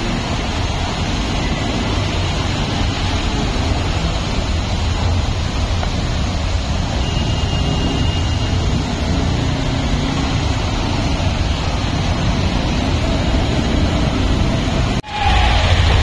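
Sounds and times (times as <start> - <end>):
motorbike engines rumbling: 0.0 - 16.0
moving water: 0.0 - 16.0.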